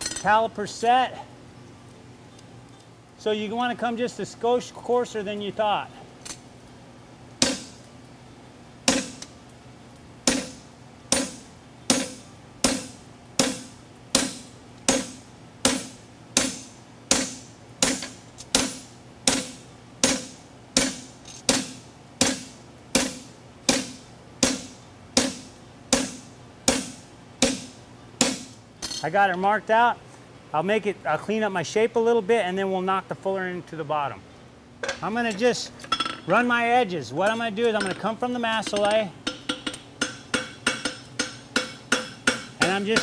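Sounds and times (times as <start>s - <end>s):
hammer ringing on metal: 38.7s - 43.0s.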